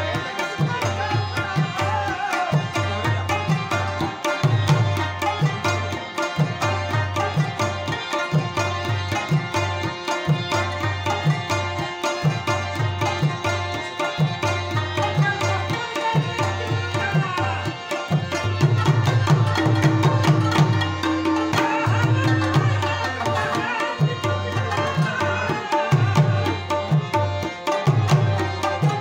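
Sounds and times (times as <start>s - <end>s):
plucked rubab melody: 0.0s - 29.0s
tabla rhythm: 0.0s - 29.0s.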